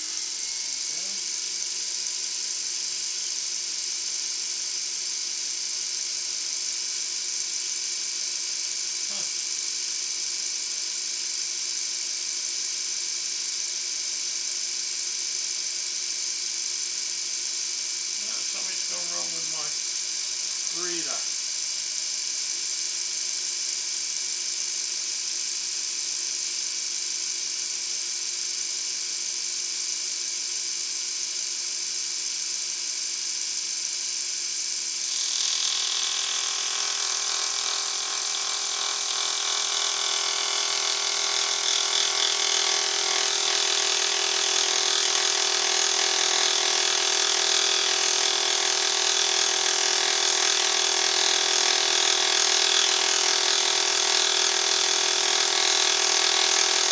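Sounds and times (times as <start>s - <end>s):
milling machine spindle whine: 0.0s - 56.9s
cutter scraping cast iron: 18.2s - 19.8s, 20.6s - 21.3s, 35.1s - 56.9s.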